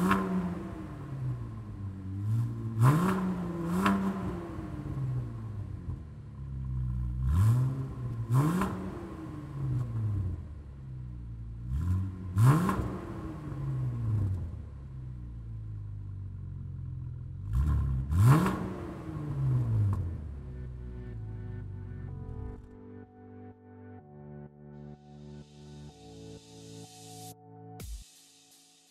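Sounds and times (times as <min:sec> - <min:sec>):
car engine revving: 0:00.0 - 0:22.7.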